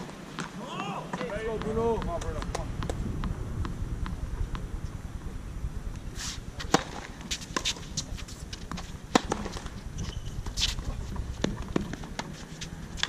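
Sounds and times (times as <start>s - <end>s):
shoe scuffs on court: 6.1s - 11.2s
tennis ball hit by racquet: 6.7s - 8.1s, 8.7s - 9.8s, 11.4s - 13.0s.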